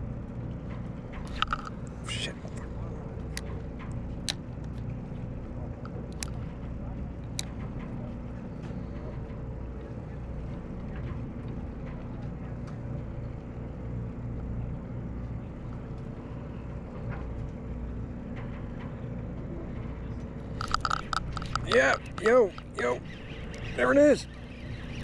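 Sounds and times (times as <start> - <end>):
boat engine humming: 0.0 - 25.0
faint ticks: 20.2 - 25.0.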